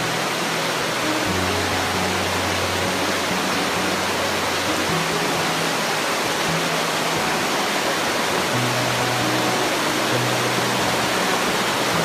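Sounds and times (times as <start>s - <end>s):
creek rushing over boulders: 0.0s - 12.0s
low sustained background music: 0.0s - 12.0s.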